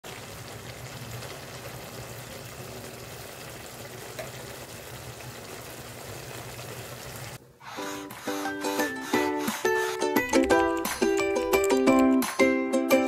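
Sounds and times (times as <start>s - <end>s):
ukulele music: 8.4s - 13.0s.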